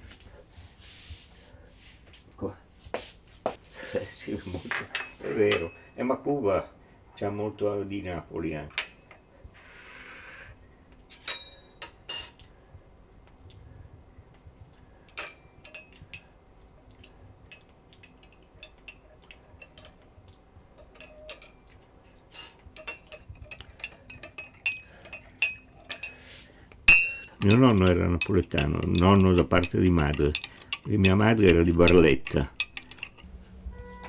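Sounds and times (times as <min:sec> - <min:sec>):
crockery and cutlery clinking: 0:04.6 - 0:06.0, 0:11.1 - 0:12.5, 0:15.1 - 0:16.3, 0:20.8 - 0:26.2, 0:26.9 - 0:34.0.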